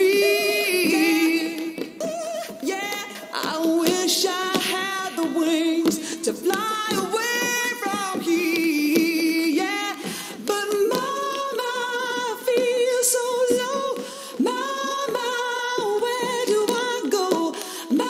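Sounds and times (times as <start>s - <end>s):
tap shoes clicking on stage: 0.0s - 18.0s
woman singing slow song: 0.0s - 18.0s.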